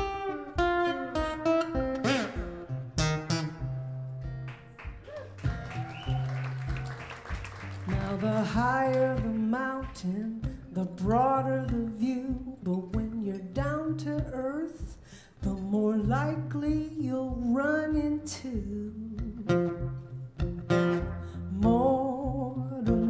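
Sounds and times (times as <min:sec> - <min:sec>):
acoustic guitar: 0:00.0 - 0:23.0
woman singing: 0:07.8 - 0:20.0, 0:21.3 - 0:23.0.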